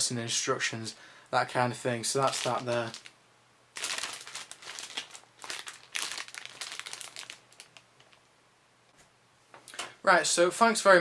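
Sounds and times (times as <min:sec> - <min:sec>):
plastic bag crinkling: 0:02.2 - 0:03.2, 0:03.8 - 0:08.2.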